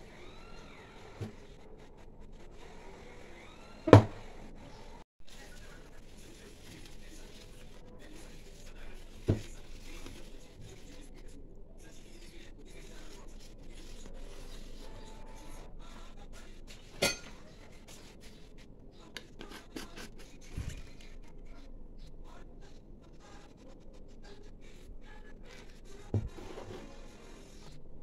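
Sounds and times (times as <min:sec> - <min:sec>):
knock: 0:03.9 - 0:04.2.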